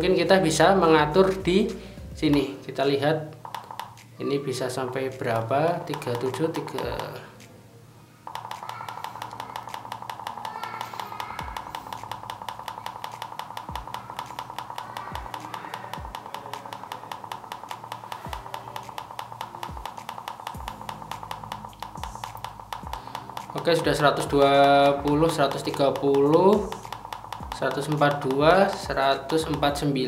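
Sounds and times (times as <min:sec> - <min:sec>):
air compressor beeping: 0:08.3 - 0:30.0.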